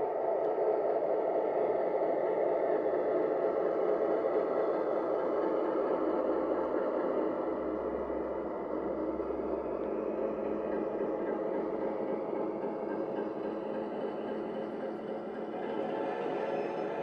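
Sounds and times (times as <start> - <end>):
model locomotive humming and rumbling: 0.0 - 17.0.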